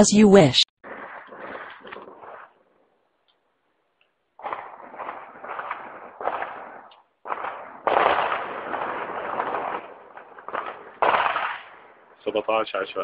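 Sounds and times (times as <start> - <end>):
gunshots echoing: 0.8 - 2.8, 4.4 - 12.2.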